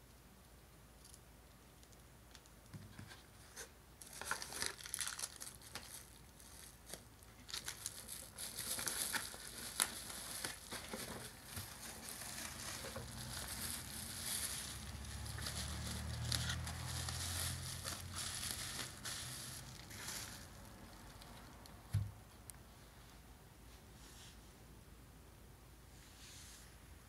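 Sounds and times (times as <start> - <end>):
bubble wrap crinkling: 4.0 - 21.8.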